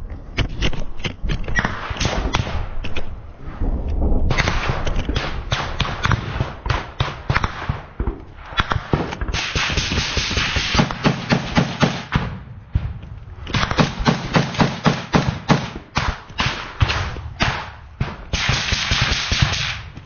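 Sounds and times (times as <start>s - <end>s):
gunfire bursts: 4.3s - 20.0s.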